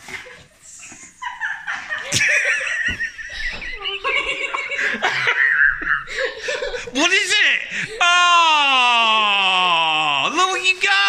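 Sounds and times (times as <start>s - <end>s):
girl laughing: 0.8s - 6.9s.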